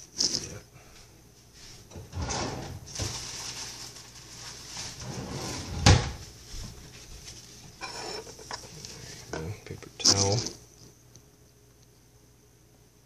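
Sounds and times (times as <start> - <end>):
drawers and cupboards rummaged: 1.9 - 6.3.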